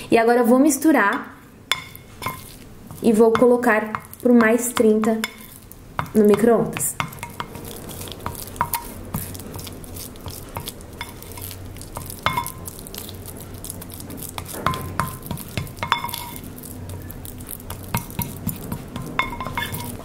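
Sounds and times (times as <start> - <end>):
spatula scraping glass bowl: 14.2 - 20.0
glass bowl ringing: 19.2 - 20.0.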